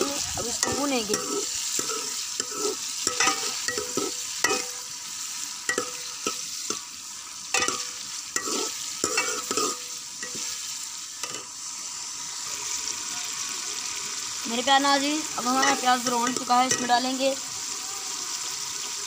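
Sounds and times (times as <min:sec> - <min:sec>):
onions sizzling in pot: 0:00.0 - 0:19.0
metal ladle scraping pot: 0:00.2 - 0:04.9, 0:07.5 - 0:10.6.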